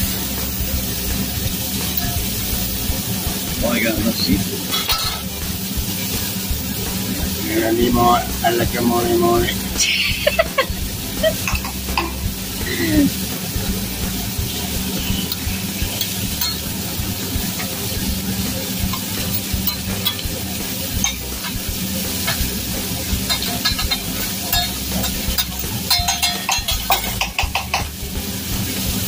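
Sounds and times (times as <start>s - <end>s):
food sizzling on a griddle: 0.0s - 29.0s
metal spatula scraping a griddle: 14.5s - 18.0s, 18.8s - 21.6s, 23.0s - 27.9s.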